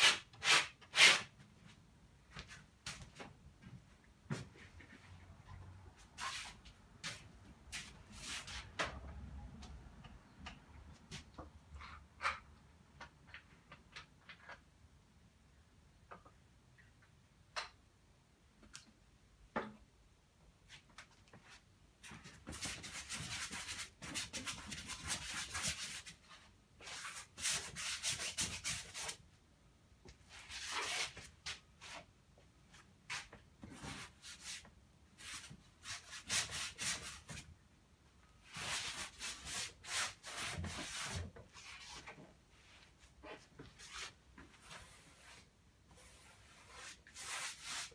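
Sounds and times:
paintbrush scrubbing on canvas: 0:43.8 - 0:47.9.

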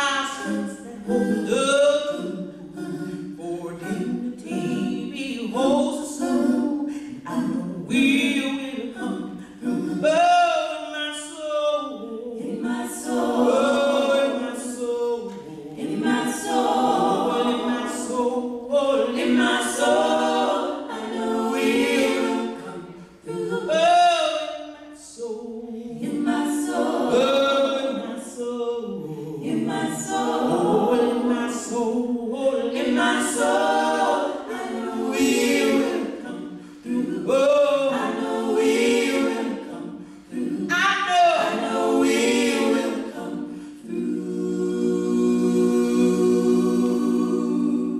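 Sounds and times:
women singing a cappella: 0:00.0 - 0:47.9
singers breathing: 0:43.4 - 0:43.8.

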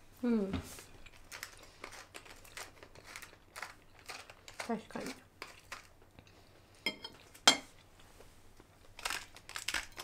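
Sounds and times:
fork clinking on ceramic plate: 0:06.9 - 0:07.7.

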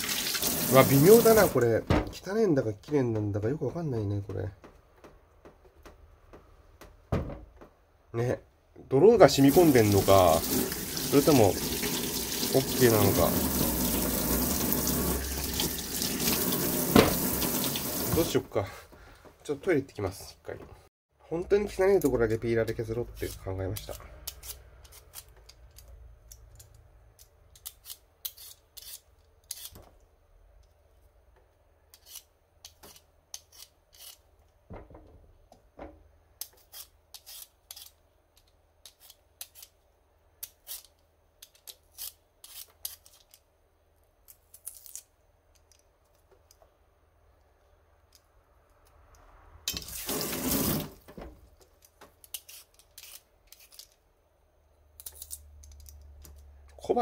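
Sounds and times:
peeler scraping potato skin: 0:23.0 - 0:25.9, 0:26.6 - 0:29.8, 0:31.9 - 0:34.3, 0:36.4 - 0:39.8, 0:40.4 - 0:43.4, 0:52.2 - 0:54.0, 0:55.0 - 0:56.0.

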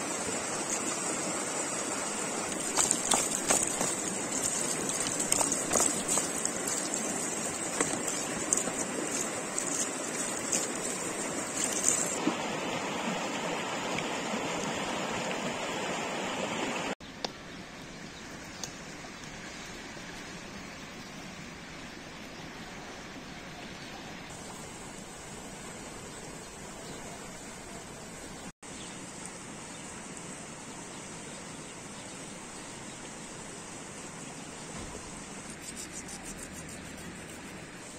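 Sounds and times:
stream rushing over rocks: 0:00.0 - 0:17.0
water splashing in colander: 0:02.3 - 0:12.3.

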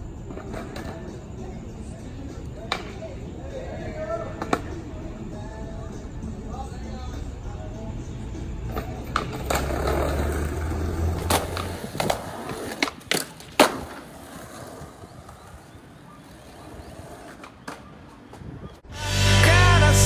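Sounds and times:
skateboard wheels rolling on concrete: 0:00.0 - 0:18.9
skateboard wooden clacks: 0:11.2 - 0:18.8.

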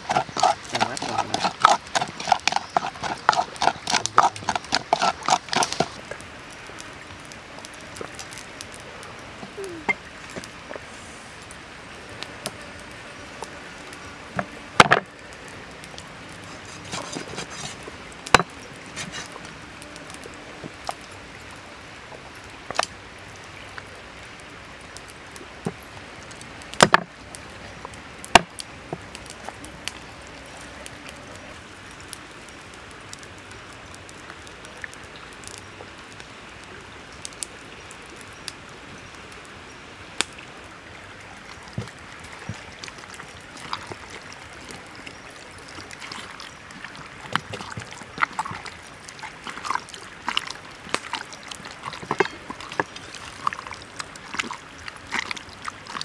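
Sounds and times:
blade knocking on wooden board: 0:14.8 - 0:15.0.

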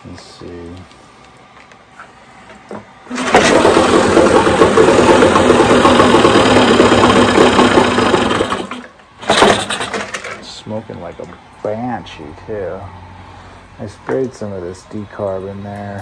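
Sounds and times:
two-stroke outboard motor running: 0:03.1 - 0:10.0.

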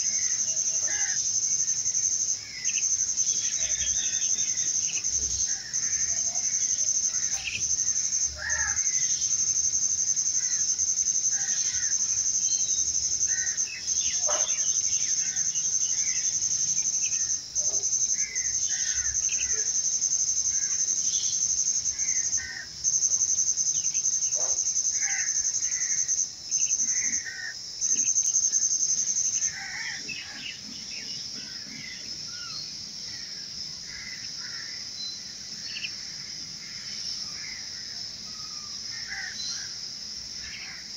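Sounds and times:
bird chirps: 0:00.0 - 0:27.2
high insect trill: 0:00.0 - 0:40.9.

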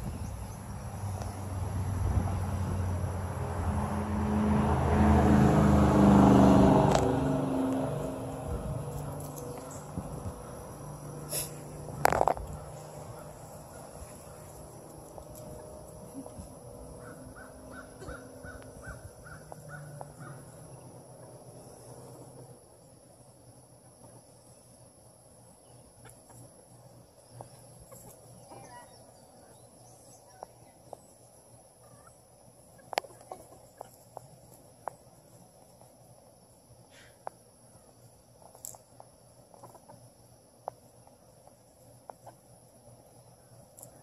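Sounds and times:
insects droning: 0:00.0 - 0:44.0
chickens pecking: 0:08.8 - 0:20.6, 0:32.6 - 0:36.3, 0:38.0 - 0:40.0, 0:40.6 - 0:44.0
chicken clucking: 0:32.7 - 0:34.2.

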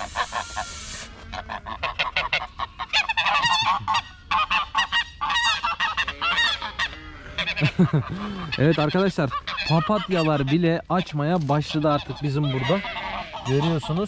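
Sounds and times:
goose hissing: 0:00.0 - 0:01.4
goose honking: 0:00.0 - 0:14.0.

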